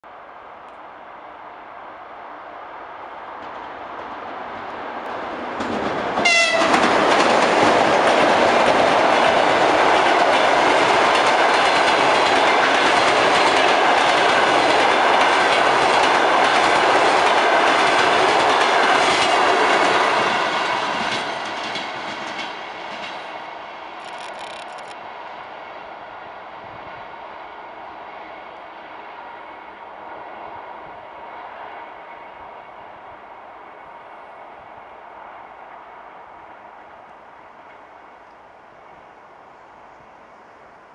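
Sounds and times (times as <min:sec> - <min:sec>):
train rumbling past: 0:00.1 - 0:40.9
locomotive horn blast: 0:06.2 - 0:06.8.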